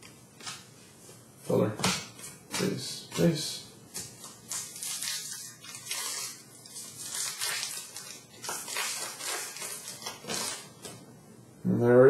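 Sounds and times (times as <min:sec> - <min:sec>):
foil wrapper tearing and crinkling: 0:04.2 - 0:10.9.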